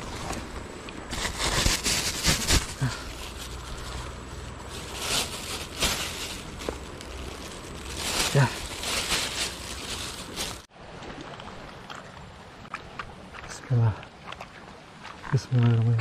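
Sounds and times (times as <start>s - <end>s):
plastic bag crinkling: 1.1s - 10.7s.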